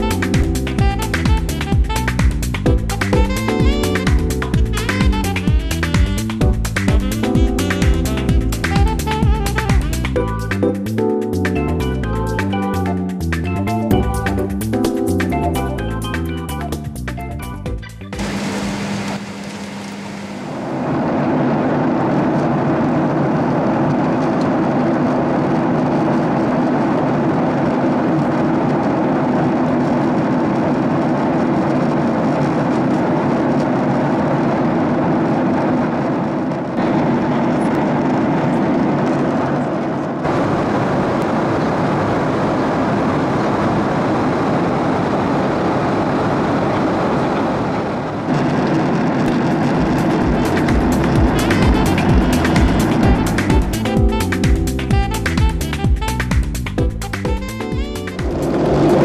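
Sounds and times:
airliner cabin engine drone: 0.0s - 16.6s, 17.7s - 59.0s
low hum: 17.7s - 59.0s.

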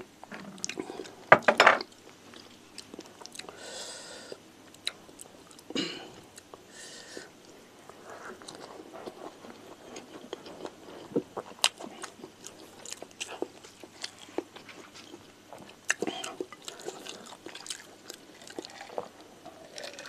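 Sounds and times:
chewing with wet mouth sounds: 7.2s - 20.0s.

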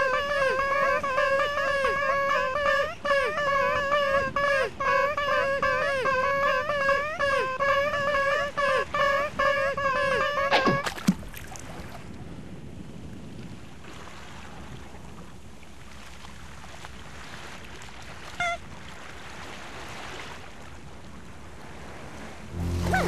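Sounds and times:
ocean waves lapping: 0.0s - 23.0s
falling glide effects: 22.5s - 23.0s.

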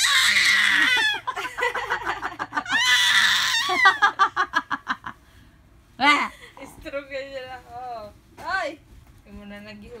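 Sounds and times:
baby squealing: 0.0s - 1.3s, 2.7s - 4.0s.

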